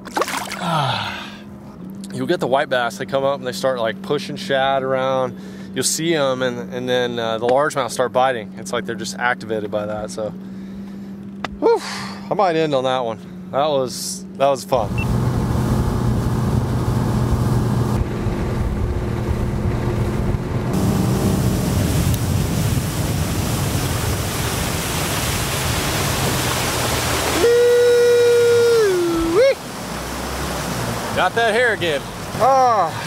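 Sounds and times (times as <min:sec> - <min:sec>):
person yelling: 0:00.5 - 0:01.4, 0:11.6 - 0:12.2, 0:27.3 - 0:29.6, 0:32.3 - 0:33.0
outboard motor running: 0:03.0 - 0:33.0
wind and water rushing: 0:14.8 - 0:33.0.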